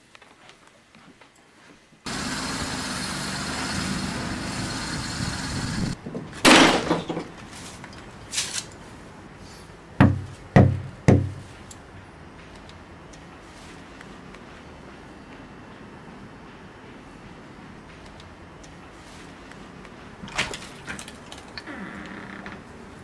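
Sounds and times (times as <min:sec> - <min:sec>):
steady noise with low hum: 0:00.0 - 0:23.0
door banging shut: 0:06.1 - 0:07.4
heavy knocks on door: 0:10.0 - 0:11.4.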